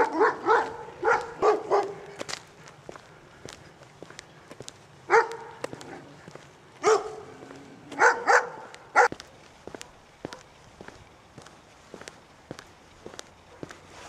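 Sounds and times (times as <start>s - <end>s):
dog barking: 0.0s - 2.2s, 5.1s - 6.2s, 6.8s - 10.5s, 13.5s - 13.8s
faint footsteps: 0.0s - 14.0s.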